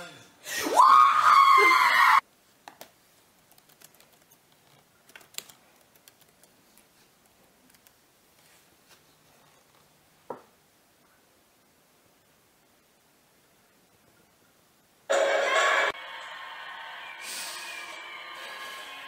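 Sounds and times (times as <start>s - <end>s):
keyboard typing: 3.4s - 6.9s.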